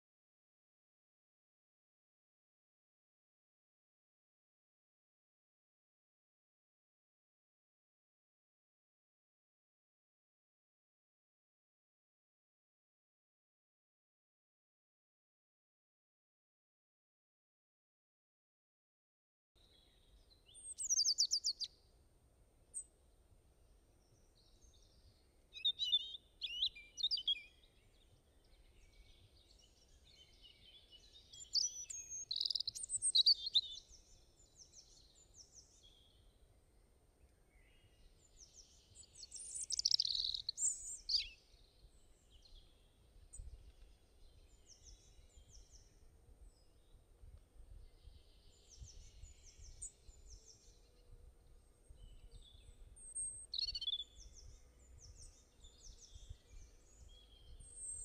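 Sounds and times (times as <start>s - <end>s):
small birds chirping and singing: 19.6s - 21.9s, 22.6s - 58.0s.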